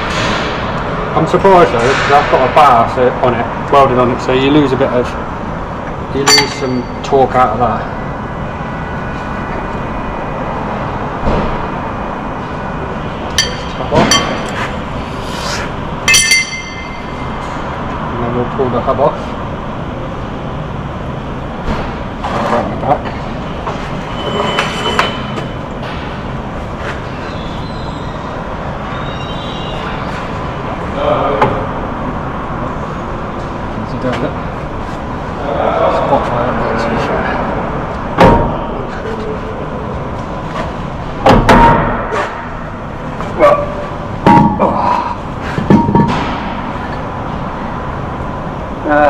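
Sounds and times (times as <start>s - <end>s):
workshop background noise: 0.0s - 49.0s
heavy metal knocks with ringing: 6.2s - 7.0s
thin high squeal: 24.1s - 25.3s.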